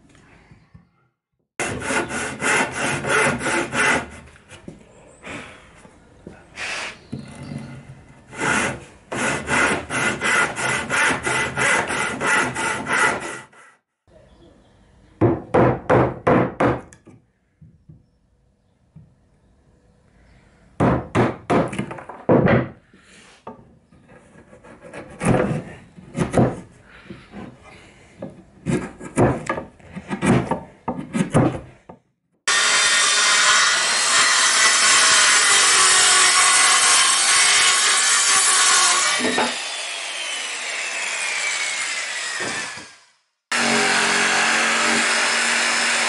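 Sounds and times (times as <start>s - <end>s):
chisel scraping wood: 24.0s - 27.6s, 28.2s - 31.8s
power saw cutting: 32.5s - 46.0s.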